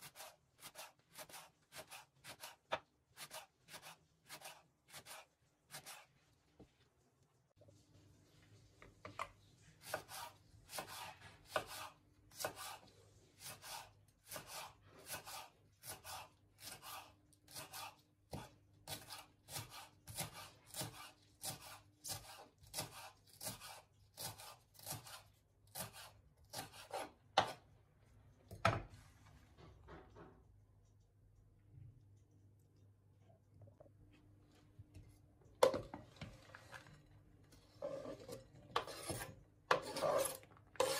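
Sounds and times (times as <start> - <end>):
knife slicing on cutting board: 0.0 - 6.1, 9.8 - 27.6, 37.8 - 40.9.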